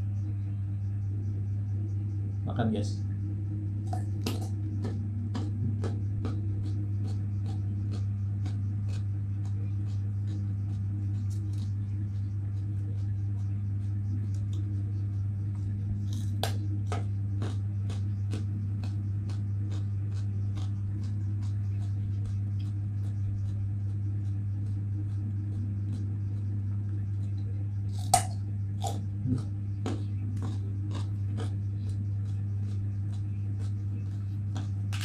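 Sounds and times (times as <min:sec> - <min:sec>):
steady low hum: 0:00.0 - 0:35.0
food being chewed: 0:03.8 - 0:35.0
carrot crunch: 0:15.6 - 0:24.0, 0:27.9 - 0:35.0.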